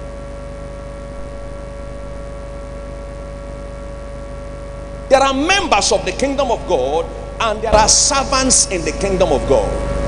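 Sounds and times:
steady hum: 0.0 - 10.0.

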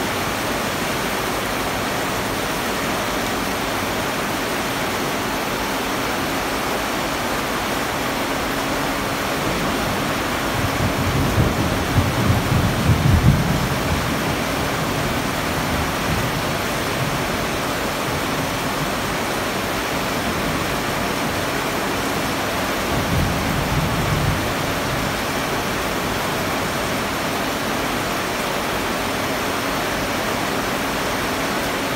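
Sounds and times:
heavy rain falling: 0.0 - 31.9.

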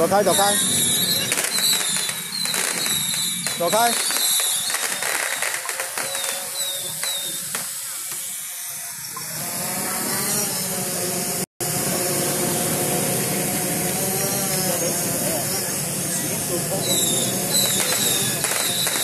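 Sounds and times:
fireworks crackling and popping: 0.0 - 9.2, 15.8 - 19.0.

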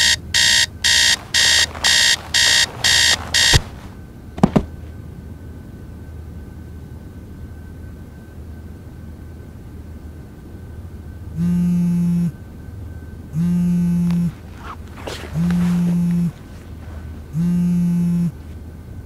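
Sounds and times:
phone vibrating buzzes: 0.0 - 3.9, 11.4 - 12.4, 13.3 - 18.4
brief movement rustle: 1.1 - 4.7, 14.1 - 17.3.

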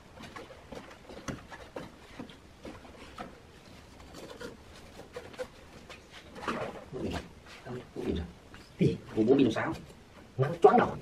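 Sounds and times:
soft rustles: 0.0 - 10.4.

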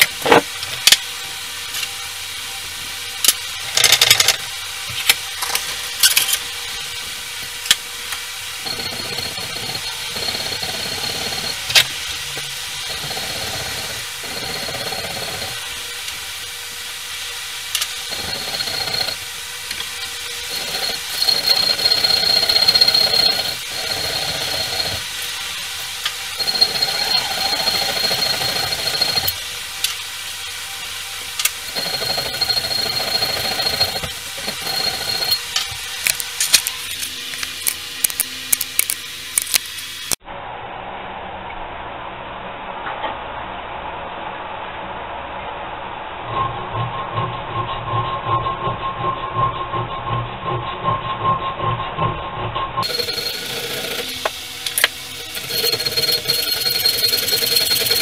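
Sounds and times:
file scraping on steel: 19.8 - 25.1, 26.4 - 29.3, 31.7 - 35.6, 52.8 - 58.0.

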